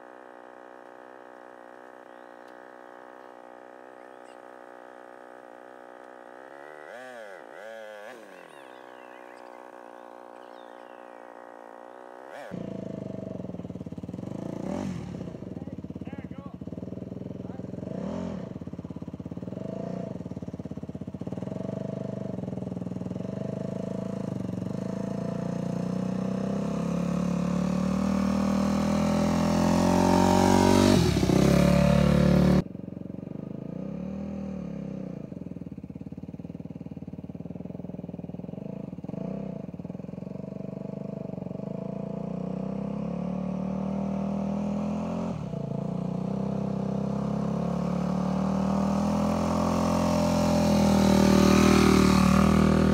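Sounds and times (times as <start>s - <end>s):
dirt bike engine passing by: 0.0s - 52.9s.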